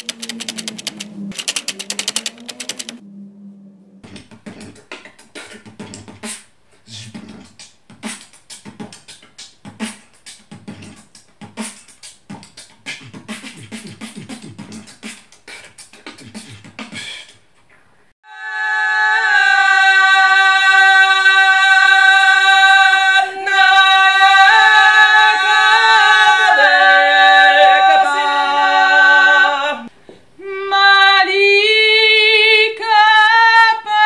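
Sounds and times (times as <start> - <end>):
typewriter clacking: 0.0 - 3.0
man beatboxing: 4.0 - 17.5.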